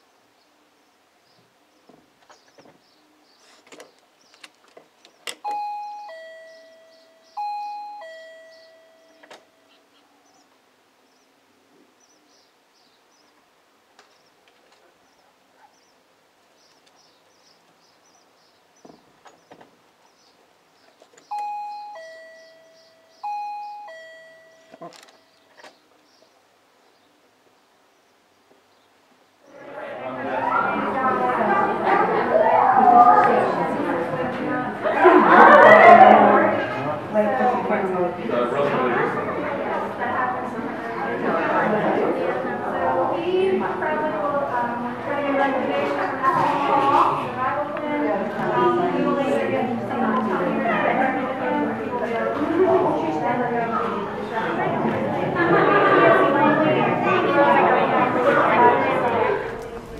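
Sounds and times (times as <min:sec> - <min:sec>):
doorbell ding-dong chime: 0:05.4 - 0:09.7, 0:21.3 - 0:25.3.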